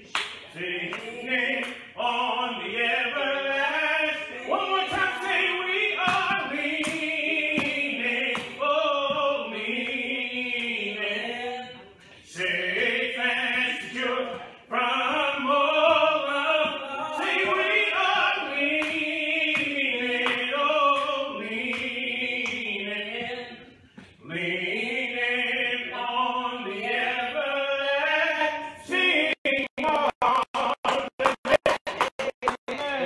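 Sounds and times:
slow hymn singing: 0.0 - 31.3.

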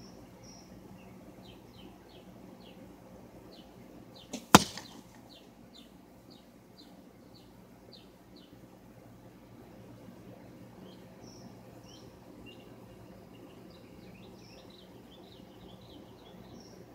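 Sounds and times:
arrow striking target: 4.3 - 5.2.

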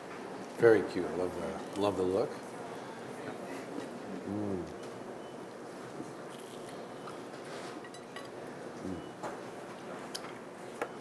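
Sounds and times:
person humming mm: 4.2 - 4.8, 8.8 - 9.1.

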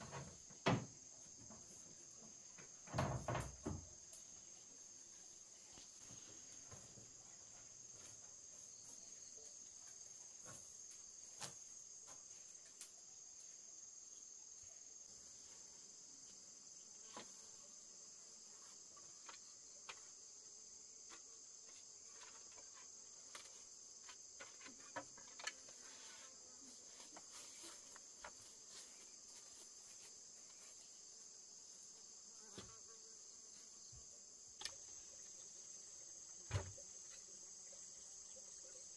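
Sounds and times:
insects chirring: 0.0 - 38.9.

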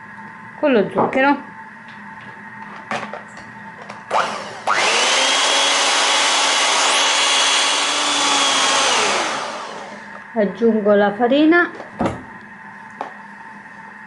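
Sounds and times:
electric hand mixer whining: 4.1 - 10.2.

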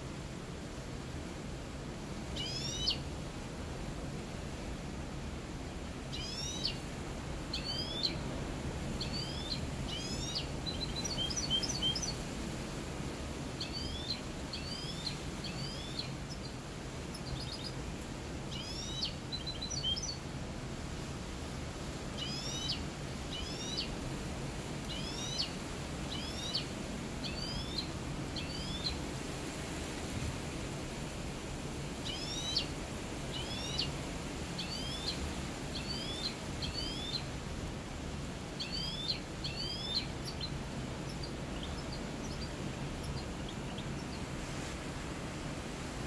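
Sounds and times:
songbird singing: 2.3 - 3.1, 5.6 - 12.4, 13.0 - 20.4, 22.1 - 29.2, 31.7 - 37.5, 38.4 - 44.4.

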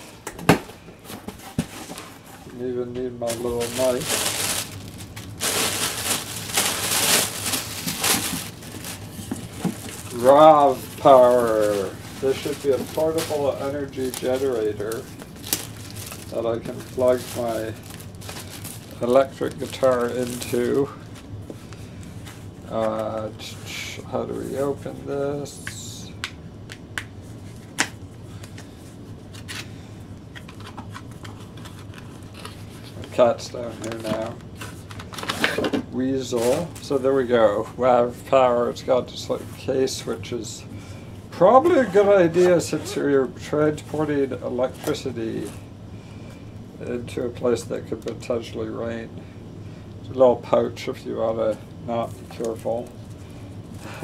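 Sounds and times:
plastic air cushion packing crinkling: 0.8 - 25.8, 27.3 - 37.3, 41.4 - 45.7
packaging rustling and clicking: 3.2 - 21.3.

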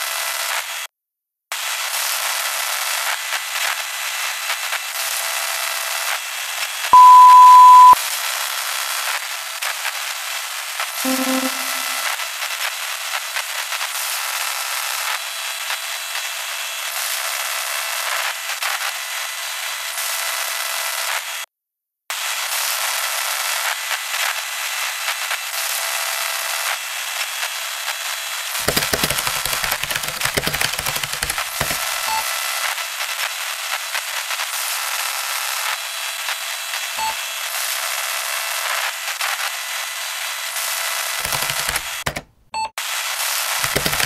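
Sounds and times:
static crackling and popping: 28.6 - 32.1, 43.6 - 44.0.

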